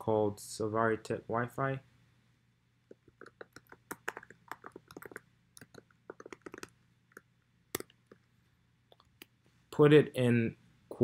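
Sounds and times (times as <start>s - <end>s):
keyboard typing: 2.9s - 7.2s.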